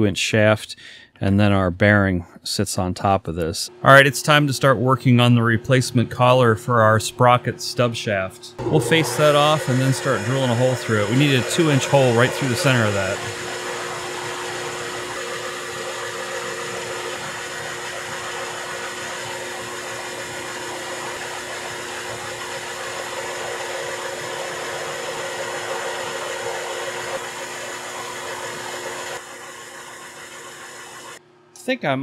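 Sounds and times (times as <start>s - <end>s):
metal lathe humming: 8.6s - 31.2s.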